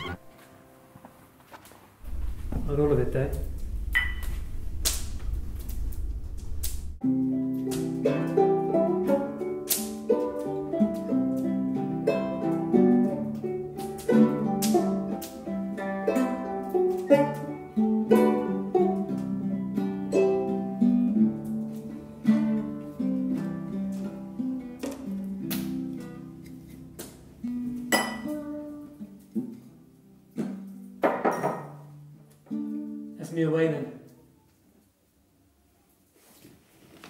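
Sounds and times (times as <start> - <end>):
small plucked string instrument: 0.0 - 0.6, 7.0 - 33.2
acoustic guitar: 0.0 - 2.8, 7.0 - 33.3.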